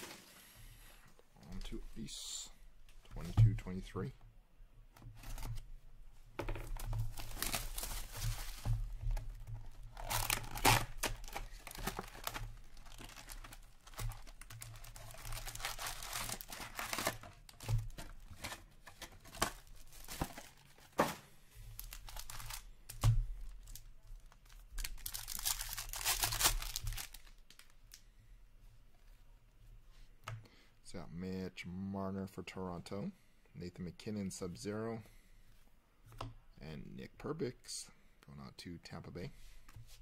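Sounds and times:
wrappers crinkling: 6.8 - 21.0, 21.8 - 28.0
foil packs tearing: 9.9 - 17.5, 24.9 - 27.3.

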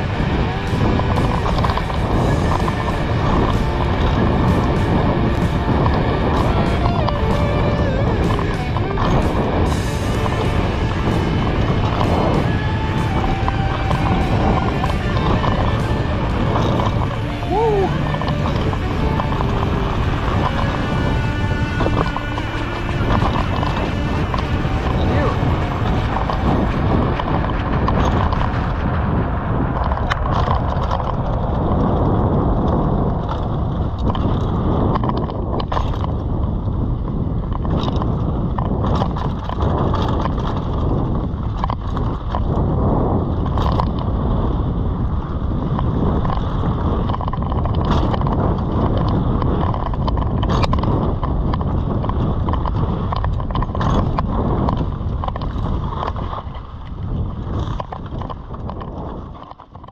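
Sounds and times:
bike rattling over bumps: 0.0 - 59.9
bike tyre and wind rush: 0.0 - 59.9.

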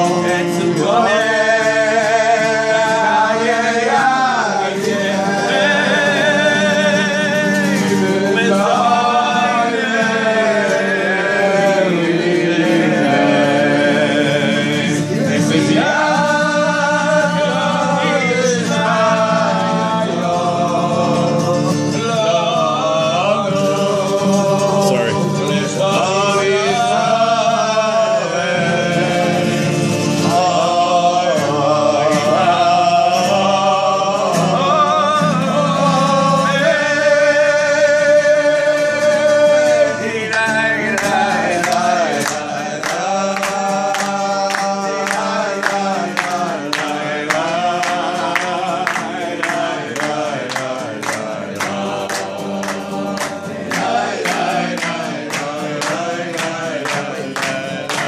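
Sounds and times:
acoustic guitar: 0.0 - 58.0
men singing together: 0.0 - 58.0
hand clapping to the beat: 34.3 - 58.0.

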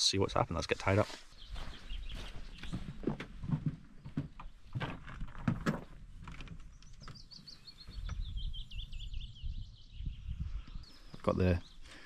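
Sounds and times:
songbird trilling: 6.7 - 12.0.

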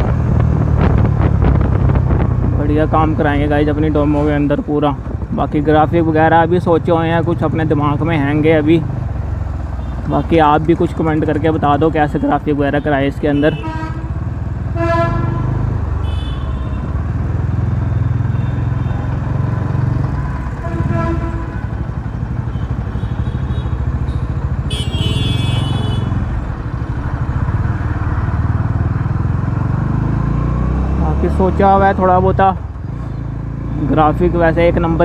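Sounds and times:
motorcycle engine rumbling: 0.0 - 35.0.

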